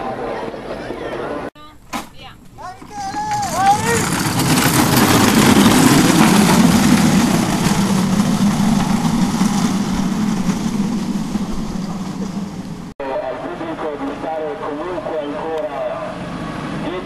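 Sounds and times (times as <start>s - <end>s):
hard wheels rumbling on asphalt: 1.7s - 12.9s, 15.1s - 17.0s.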